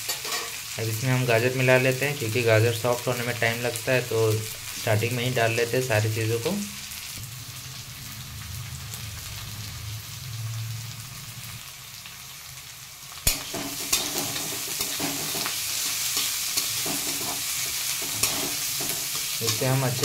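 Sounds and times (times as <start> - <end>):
metal spatula scraping a pan: 0.0 - 0.6, 13.3 - 20.0
vegetables sizzling in oil: 0.0 - 20.0.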